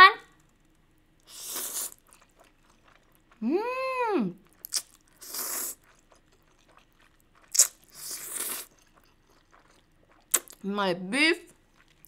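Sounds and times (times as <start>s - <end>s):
noodles being slurped: 1.3s - 3.4s, 4.5s - 10.6s.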